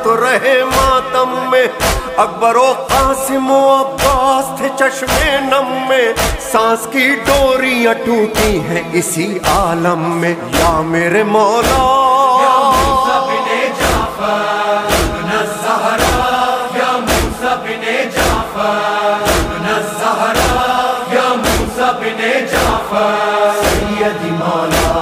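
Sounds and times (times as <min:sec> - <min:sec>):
male voices chanting: 0:00.0 - 0:25.0
chest-beating thumps: 0:01.8 - 0:02.2, 0:05.1 - 0:05.4, 0:06.2 - 0:06.5, 0:10.6 - 0:10.9, 0:11.6 - 0:12.0, 0:12.7 - 0:13.1, 0:13.8 - 0:14.2, 0:14.8 - 0:16.4, 0:17.0 - 0:18.6, 0:19.2 - 0:20.8, 0:21.4 - 0:21.9, 0:22.5 - 0:22.9, 0:23.6 - 0:24.0, 0:24.6 - 0:25.0.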